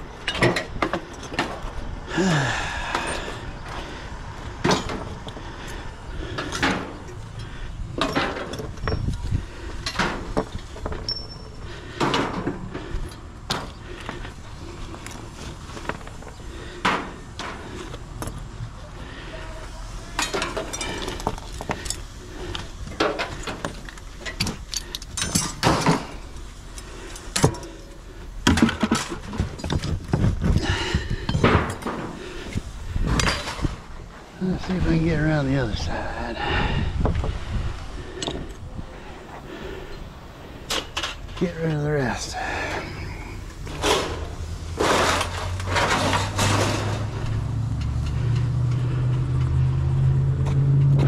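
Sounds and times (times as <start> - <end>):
scrap metal clanking: 19.1 - 33.9, 40.6 - 48.9.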